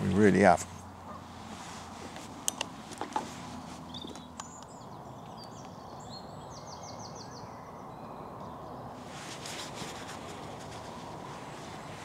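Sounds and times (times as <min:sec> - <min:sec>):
distant road traffic rumble: 0:00.0 - 0:12.0
small birds chirping: 0:03.1 - 0:12.0.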